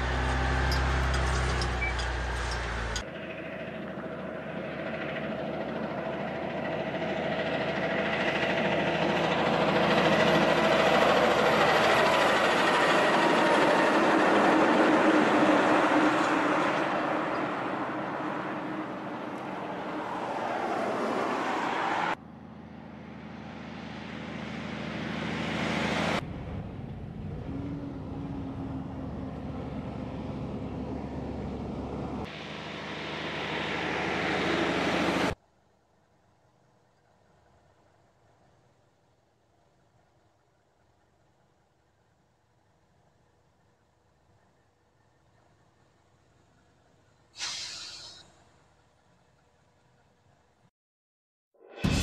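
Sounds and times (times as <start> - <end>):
diesel trucks driving past: 0.0 - 35.4.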